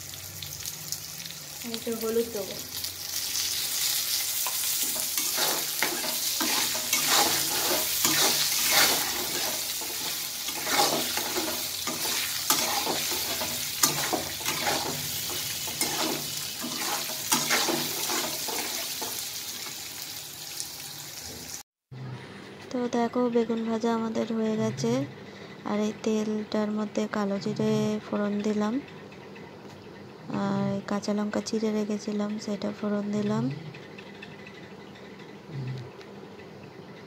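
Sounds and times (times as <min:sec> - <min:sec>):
eggplant sizzling in hot oil: 0:00.0 - 0:21.6
metal spatula scraping a pan: 0:03.4 - 0:19.3.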